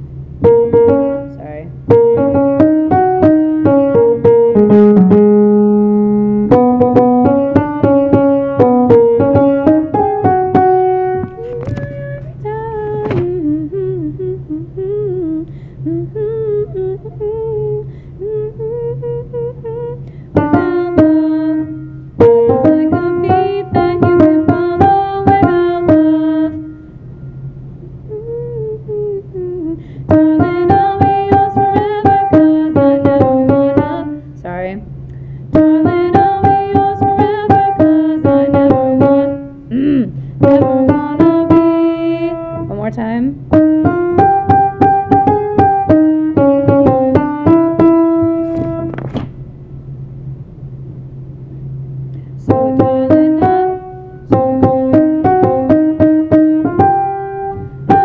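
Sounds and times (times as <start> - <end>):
piano chords: 0.0 - 58.0
person singing: 11.2 - 21.8, 22.4 - 26.6, 28.1 - 34.1, 35.6 - 42.4, 52.5 - 54.8.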